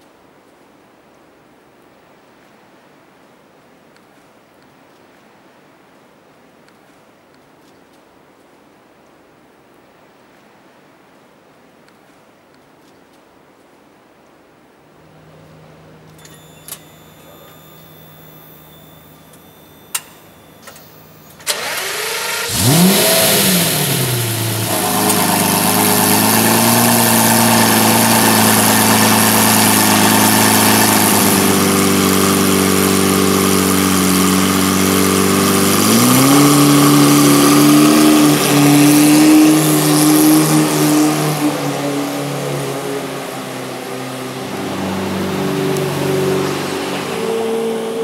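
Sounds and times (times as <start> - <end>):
car engine starting and idling: 15.1 - 48.0
clicks: 19.3 - 21.8
engine revving: 21.4 - 48.0.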